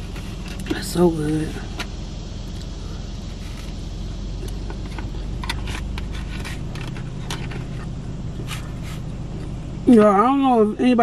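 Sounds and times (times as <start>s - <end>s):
car engine idling: 0.0s - 11.0s.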